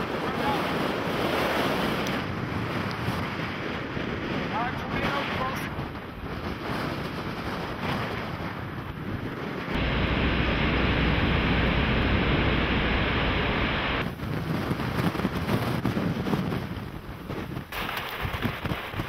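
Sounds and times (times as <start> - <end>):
wind buffeting microphone: 0.0 - 19.0
deep low rumble: 9.8 - 14.1.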